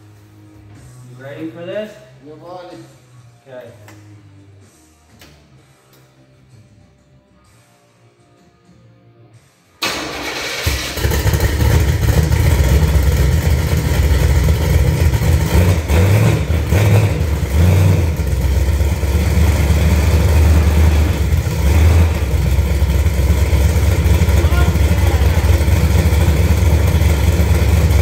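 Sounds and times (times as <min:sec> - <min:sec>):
pickup truck engine rumbling: 0:10.6 - 0:28.0.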